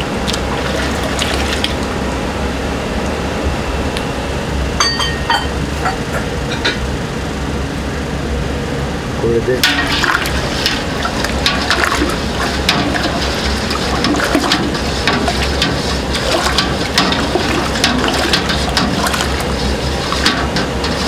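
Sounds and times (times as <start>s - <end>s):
liquid sloshing and splashing: 0.0s - 1.9s, 9.6s - 21.0s
steady low hum: 0.0s - 21.0s.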